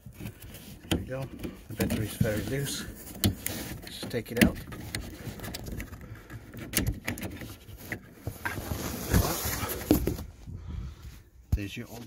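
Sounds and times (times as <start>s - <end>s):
handling clicks and knocks: 0.1s - 8.5s.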